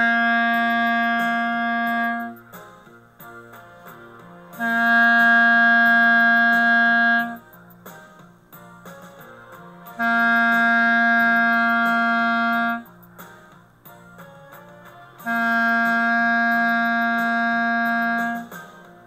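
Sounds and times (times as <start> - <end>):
clarinet long held tones: 0.0 - 2.4, 4.2 - 7.4, 9.8 - 12.9, 15.1 - 18.7.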